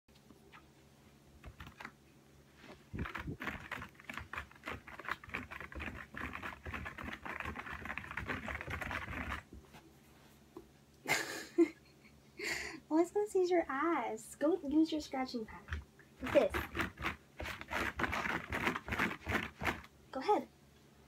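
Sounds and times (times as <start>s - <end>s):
cat scratching with claws: 1.4s - 2.0s, 2.6s - 9.6s, 15.5s - 19.9s.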